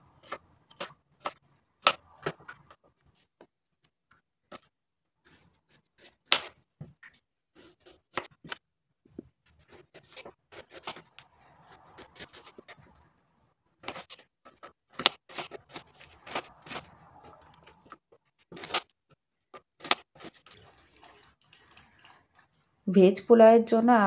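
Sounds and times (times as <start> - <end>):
knife scraping board: 9.5 - 13.0, 13.8 - 18.9
knife chopping on plastic board: 13.8 - 16.9.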